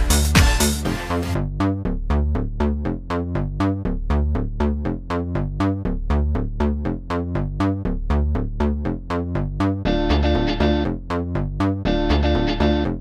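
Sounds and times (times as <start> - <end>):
steady bass line: 0.0 - 13.0
repeating synthesizer pattern: 9.9 - 10.9.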